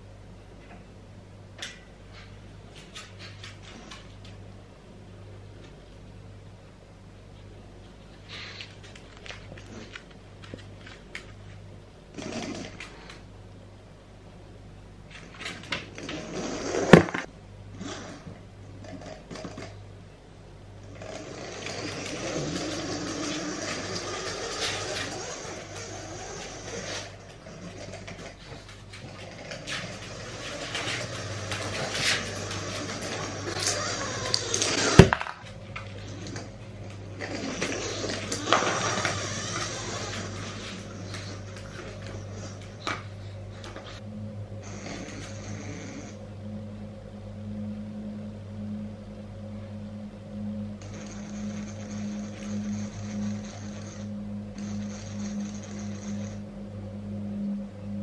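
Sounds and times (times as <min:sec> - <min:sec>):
steady low hum: 0:00.0 - 0:58.0
toy robot motors whirring: 0:33.1 - 0:35.0, 0:37.7 - 0:40.6.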